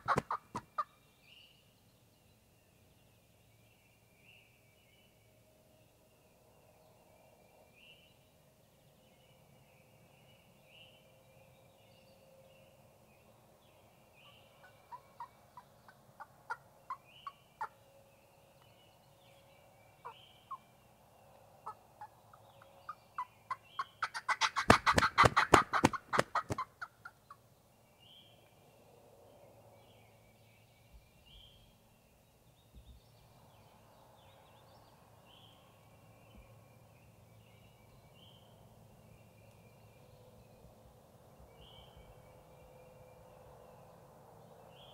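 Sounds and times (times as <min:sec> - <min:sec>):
turkey gobbling: 0:00.0 - 0:00.9, 0:23.2 - 0:27.2.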